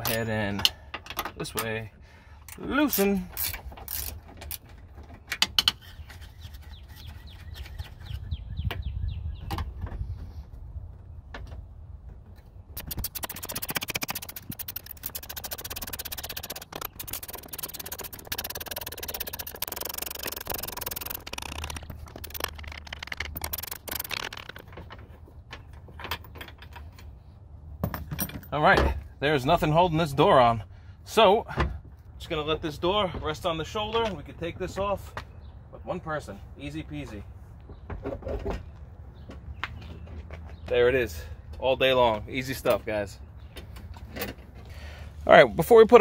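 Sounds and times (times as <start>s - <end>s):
ratchet wrench clicking: 2.9s - 4.6s, 12.8s - 24.7s.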